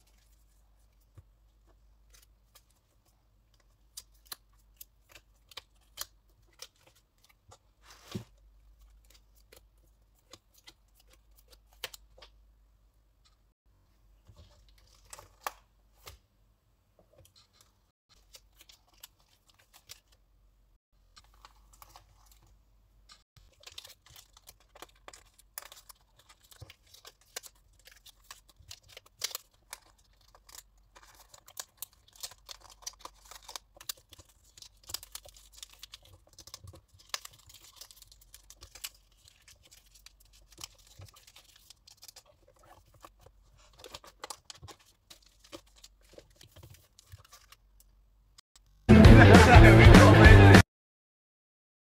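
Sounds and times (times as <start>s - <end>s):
plastic sleeves rustling: 17.0s - 20.3s, 21.0s - 48.0s.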